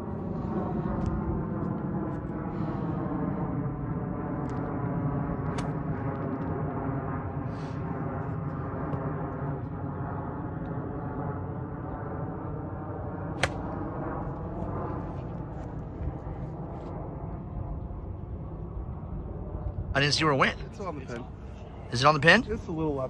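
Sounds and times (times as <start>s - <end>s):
steady hum: 0.0s - 23.0s
golf club striking ball: 13.4s - 13.7s.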